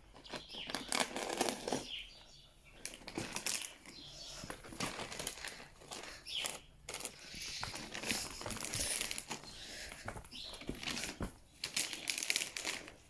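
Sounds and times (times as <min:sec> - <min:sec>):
plastic bag rustling and crinkling: 0:00.0 - 0:02.0, 0:02.8 - 0:13.0.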